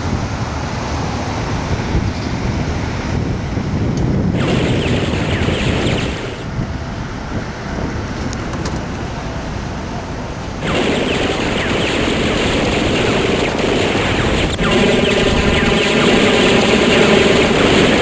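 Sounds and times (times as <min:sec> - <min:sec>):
wind noise on microphone: 0:00.0 - 0:09.0.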